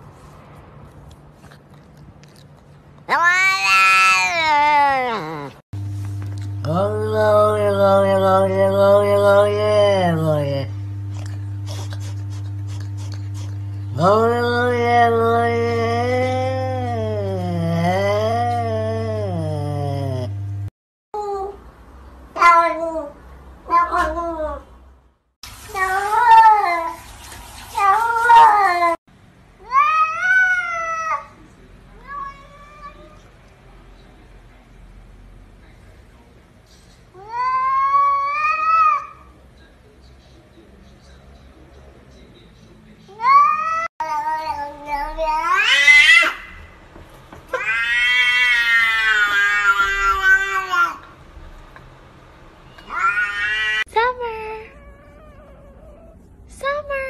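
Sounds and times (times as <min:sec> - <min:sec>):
cats meowing: 0:03.0 - 0:05.6, 0:43.2 - 0:46.6, 0:47.5 - 0:51.0, 0:52.8 - 0:53.9.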